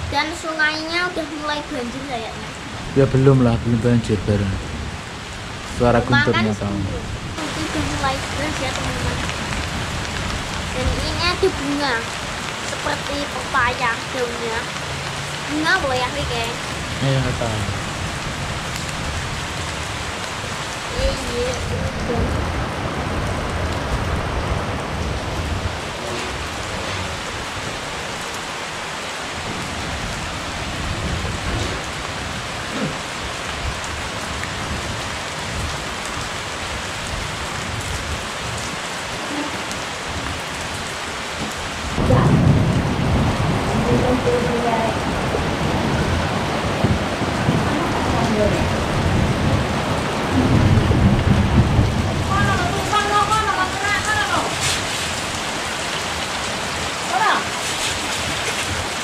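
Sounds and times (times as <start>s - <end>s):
steady rain falling: 0.0s - 59.0s
low thunder rumble: 2.3s - 14.7s, 15.5s - 28.4s, 29.3s - 39.4s, 41.5s - 57.4s.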